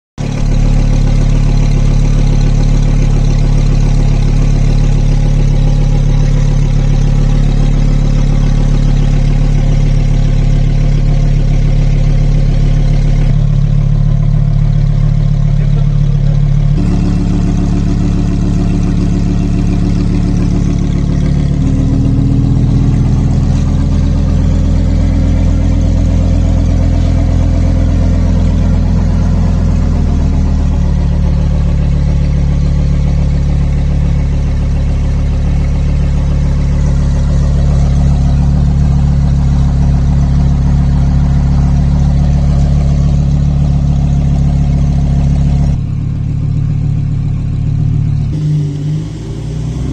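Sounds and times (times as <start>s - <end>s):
car engine idling loudly: 0.2s - 49.9s.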